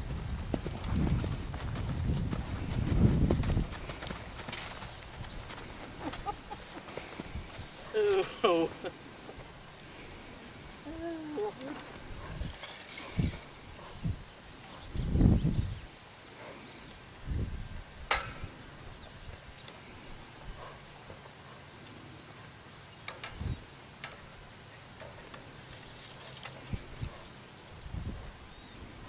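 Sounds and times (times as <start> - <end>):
insect chorus: 0.0 - 29.0.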